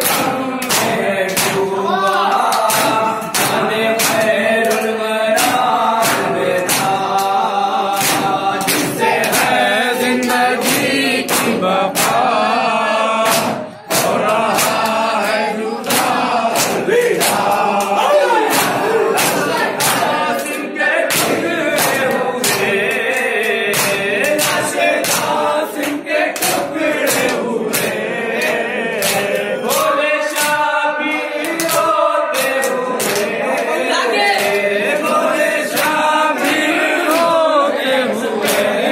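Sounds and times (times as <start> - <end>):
hands beating on chests: 0.0 - 9.6, 13.2 - 22.9
men chanting in chorus: 0.0 - 38.9.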